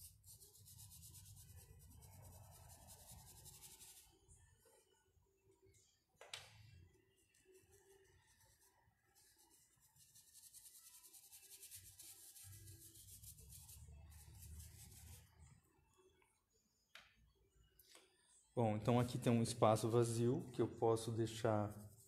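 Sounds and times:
paintbrush scrubbing wood: 9.2 - 15.2.

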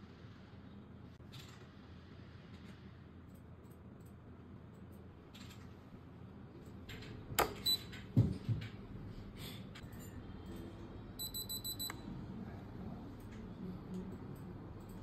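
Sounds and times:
short high-pitched beeps: 11.2 - 12.0.

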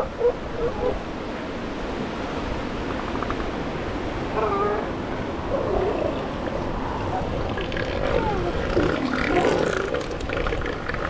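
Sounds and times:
surf washing: 0.0 - 11.0
elephant seals moaning calls: 4.2 - 11.0.

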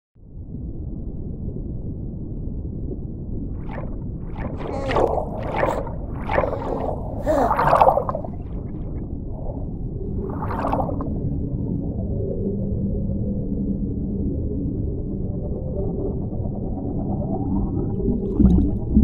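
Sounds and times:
low underwater rumble: 0.2 - 15.1, 15.8 - 19.0
bubbling underwater: 3.6 - 8.8, 9.4 - 11.2, 18.2 - 19.0.

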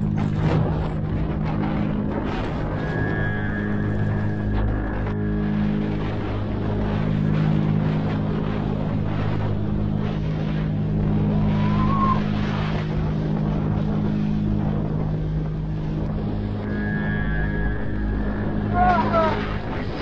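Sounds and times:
low drone chord: 0.0 - 20.0
short rising glide: 9.2 - 20.0.

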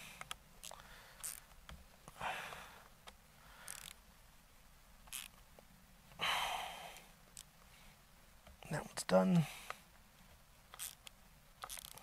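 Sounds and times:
soft breaths: 0.0 - 4.1, 6.0 - 10.4.

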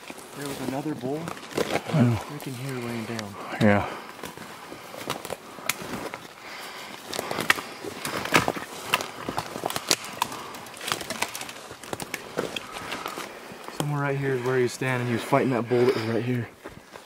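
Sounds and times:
boots crunching on dry twigs: 0.0 - 3.3, 4.1 - 14.7
small branches snapping: 0.0 - 3.3, 4.1 - 6.3, 6.9 - 14.0.

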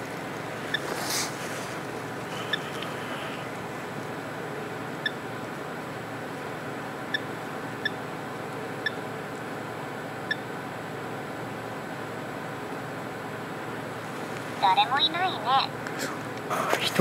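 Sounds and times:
rustle: 0.0 - 3.6
steady hiss: 0.0 - 4.3
faint electronic beeps: 2.3 - 3.6.

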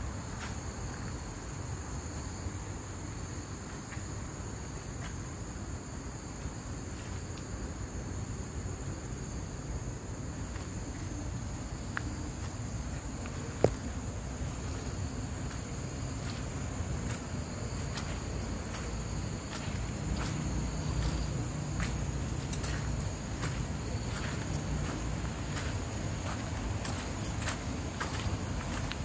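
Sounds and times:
insects droning in chorus: 0.0 - 29.0
constant low rumble: 3.7 - 29.0
faint ticks: 21.0 - 25.0.

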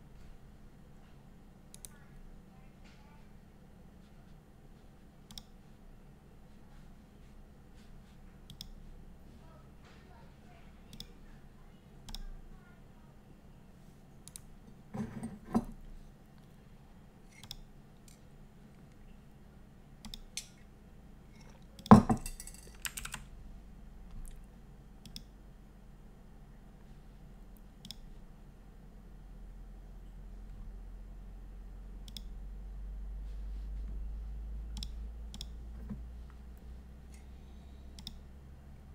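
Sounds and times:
faint steady hum: 0.0 - 38.9
clicks and knocks at a desk: 14.9 - 15.8, 21.4 - 23.2, 35.8 - 36.0.

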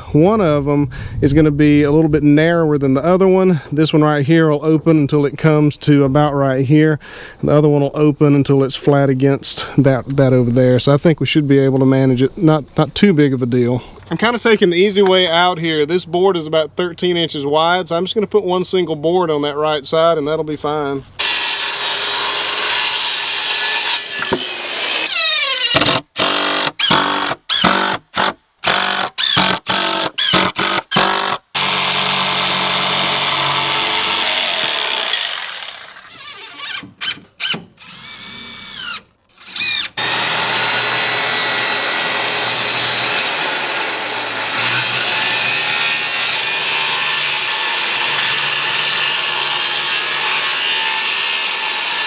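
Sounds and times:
circular saw cutting wood: 21.2 - 27.9, 28.7 - 52.0
power tool bursts: 24.1 - 40.9.

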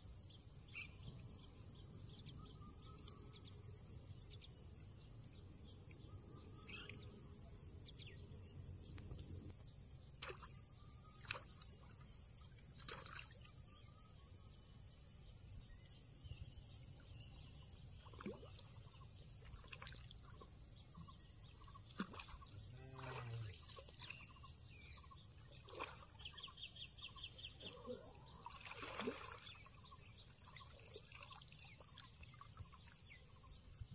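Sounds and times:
fish splashing in water: 12.8 - 13.4, 28.4 - 29.8
high insect buzz: 21.6 - 25.6.

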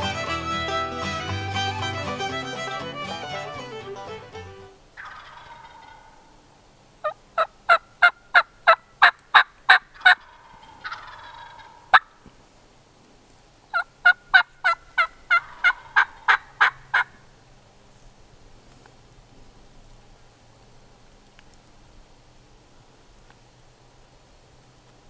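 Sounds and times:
turkey yelping: 0.6 - 6.4, 7.0 - 12.2, 13.7 - 17.3
turkey cluck: 5.0 - 6.4, 7.0 - 12.2, 13.7 - 17.3.

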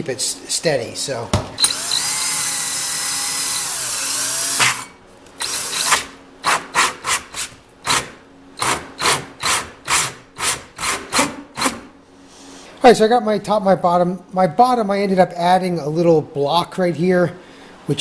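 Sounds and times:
power drill with hole saw cutting plastic: 1.6 - 6.1.

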